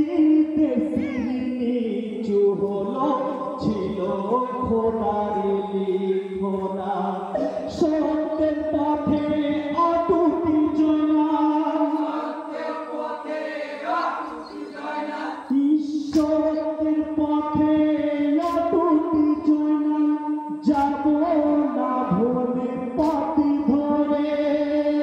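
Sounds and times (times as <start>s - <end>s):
group of voices chanting: 11.9s - 15.5s.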